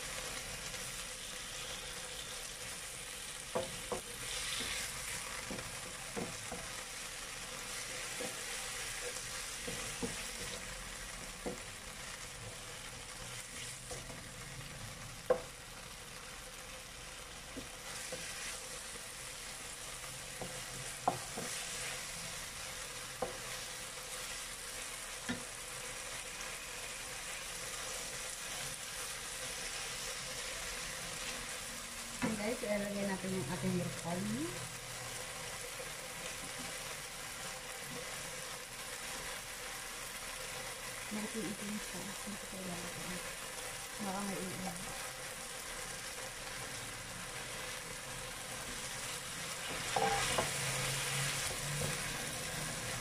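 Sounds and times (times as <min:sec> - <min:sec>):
meat sizzling in a frying pan: 0:00.0 - 0:53.0
spatula clattering against pan: 0:49.7 - 0:50.5.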